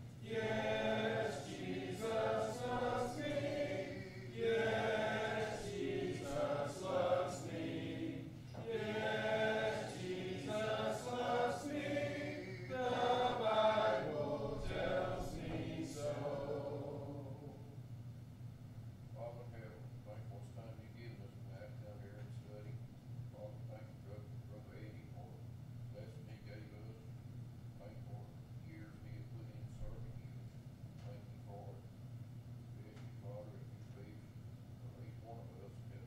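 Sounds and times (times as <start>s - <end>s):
congregation singing a hymn: 0.0s - 17.8s.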